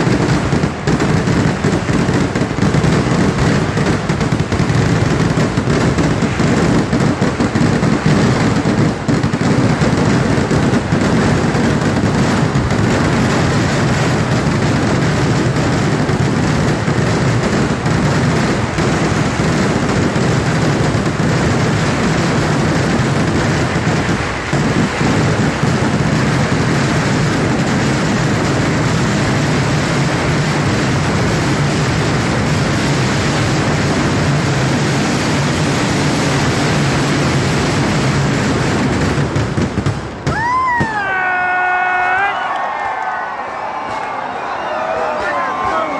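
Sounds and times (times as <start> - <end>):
sharp firecracker cracks: 0.0 - 32.7, 42.1 - 45.9
fireworks barrage: 0.0 - 45.9.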